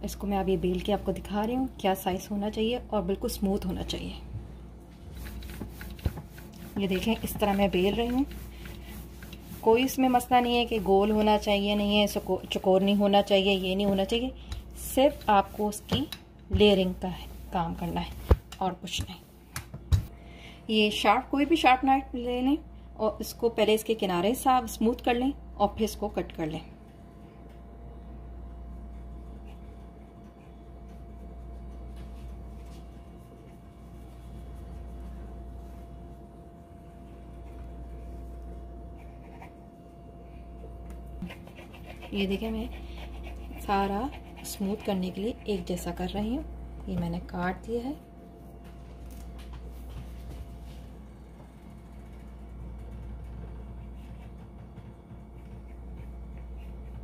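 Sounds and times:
steady low hum: 0.0s - 57.0s
blade scraping pastry dough: 5.0s - 19.3s, 41.2s - 46.1s.

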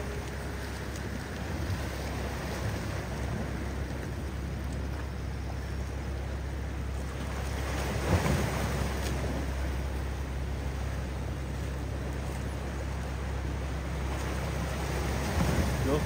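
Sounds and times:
boat engine drone: 0.0s - 16.0s
waves washing: 0.0s - 16.0s.

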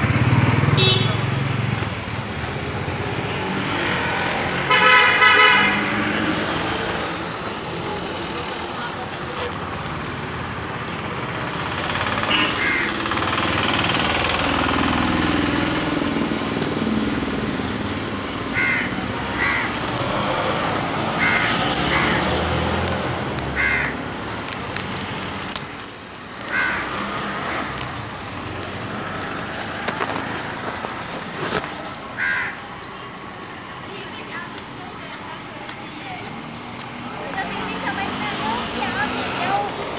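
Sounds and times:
street traffic hum: 0.0s - 39.9s
crows cawing: 12.1s - 13.4s, 18.5s - 20.3s, 21.0s - 22.6s, 23.5s - 24.1s, 26.4s - 27.3s, 32.1s - 32.7s.

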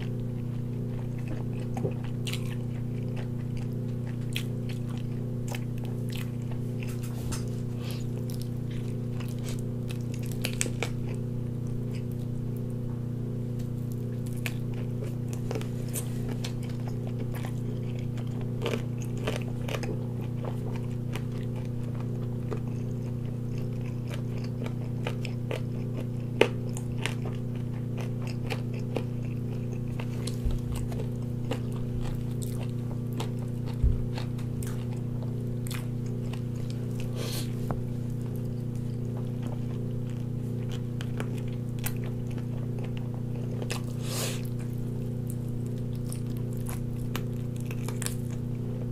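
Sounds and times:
chewing with wet smacks: 0.0s - 12.8s, 13.6s - 48.9s
steady low hum: 0.0s - 48.9s.

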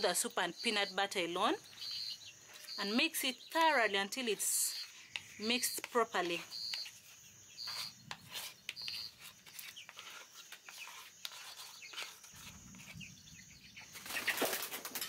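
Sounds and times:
metal spoon scraping plastic bowl: 4.1s - 13.3s.

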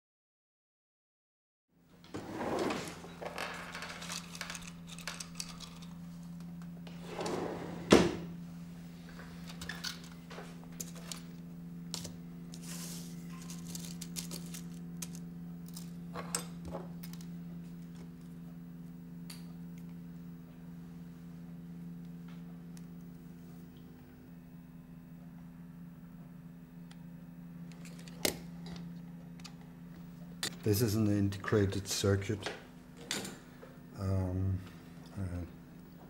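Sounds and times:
steady low hum: 1.9s - 36.0s
small parts and tools rattling: 3.2s - 6.0s, 13.3s - 17.3s.

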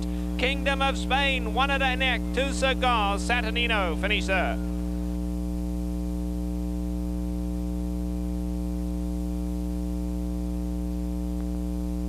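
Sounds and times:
electrical mains hum: 0.0s - 12.0s
faint tick: 11.3s - 11.6s.

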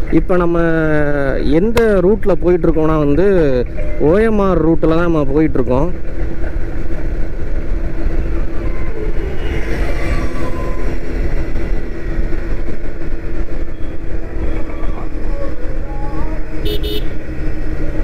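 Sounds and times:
motorcycle engine cruising: 5.9s - 18.0s.

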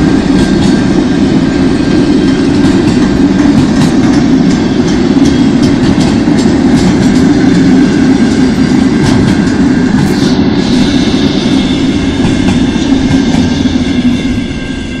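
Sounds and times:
freight train wagons rumbling: 0.0s - 15.0s
wheels clicking over rail joints: 2.2s - 7.8s.

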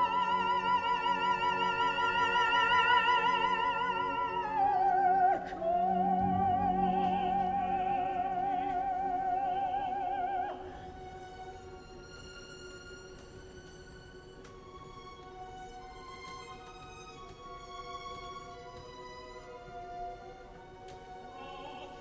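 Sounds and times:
operatic soprano and tenor singing: 0.0s - 11.8s, 17.4s - 22.0s
orchestra playing softly: 0.0s - 22.0s.

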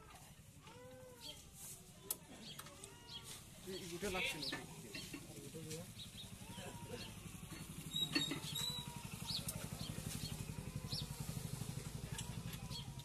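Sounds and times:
birds chirping: 2.3s - 5.2s, 5.8s - 13.0s
tractor diesel engine idling: 4.4s - 13.0s.

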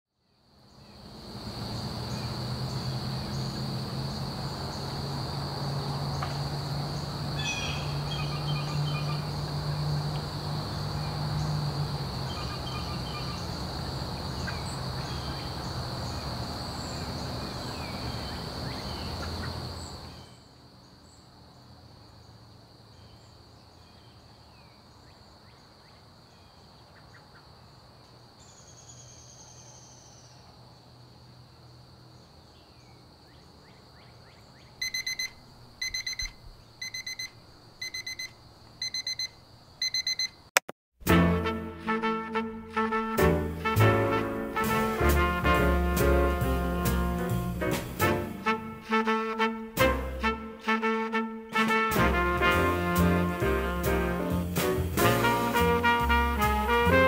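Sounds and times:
insects droning: 0.2s - 40.5s
birds chirping: 6.1s - 20.4s.

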